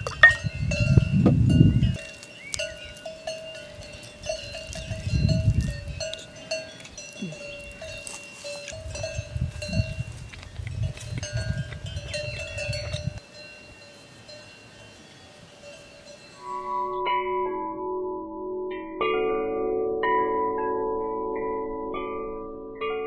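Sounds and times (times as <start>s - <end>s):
livestock bells clanking: 0.0s - 17.6s.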